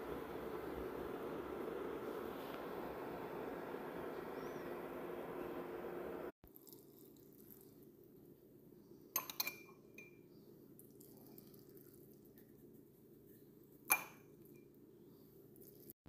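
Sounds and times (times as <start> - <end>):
faint steady hum: 0.0 - 15.8
spoon clinking on glass jar: 9.2 - 10.2.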